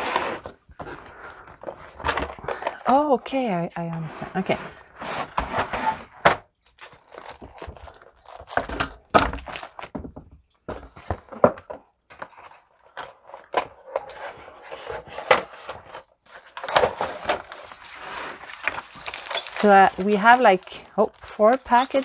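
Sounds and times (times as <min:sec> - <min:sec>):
cardboard and shrink-wrap rustling: 0:04.1 - 0:10.1, 0:12.1 - 0:22.0.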